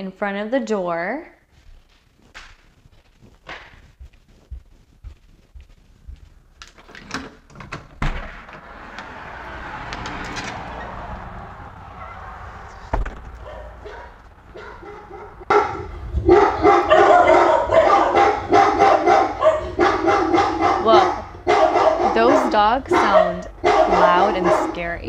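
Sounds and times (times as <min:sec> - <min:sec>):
door shutting with a thump: 0:07.7 - 0:08.7, 0:12.8 - 0:13.4
electronic dog barking alarm: 0:14.8 - 0:25.0.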